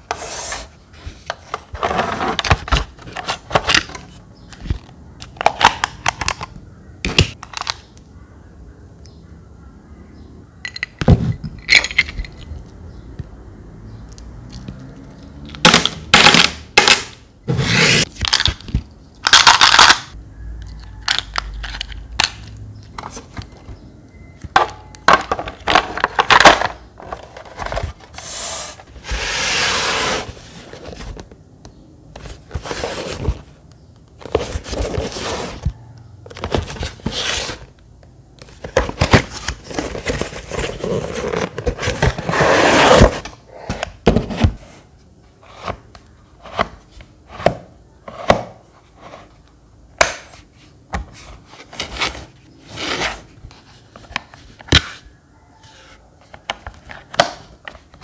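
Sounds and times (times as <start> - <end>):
scraping and rubbing: 27.0 - 31.2.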